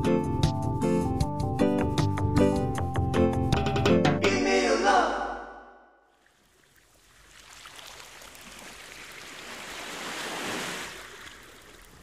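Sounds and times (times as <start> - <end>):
waves washing on shore: 7.1 - 12.0.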